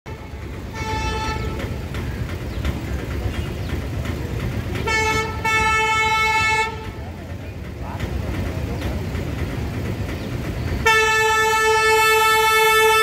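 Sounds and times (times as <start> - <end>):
train horn blasts: 0.1 - 1.8, 4.8 - 7.0, 10.8 - 13.0.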